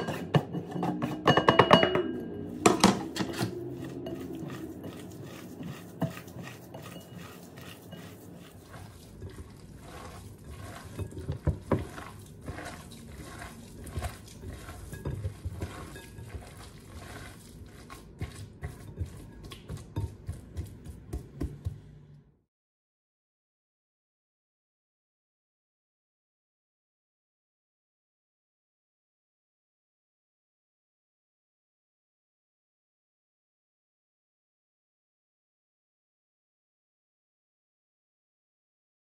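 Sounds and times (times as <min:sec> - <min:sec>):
knocks and clinks against glass: 0:00.0 - 0:03.3
meat mixed by hand in glass bowl: 0:00.0 - 0:22.1.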